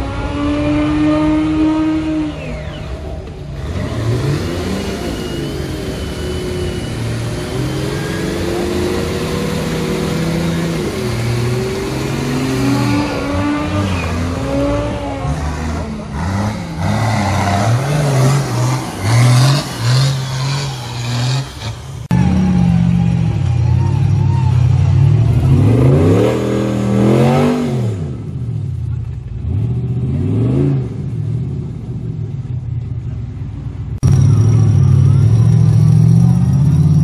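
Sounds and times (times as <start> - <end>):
engine revving hard: 3.6 - 22.2.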